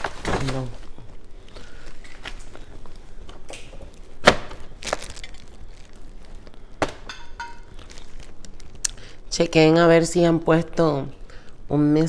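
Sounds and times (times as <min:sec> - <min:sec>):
plastic bag rustling: 0:00.0 - 0:09.1
sharp cracking snaps: 0:02.0 - 0:09.0.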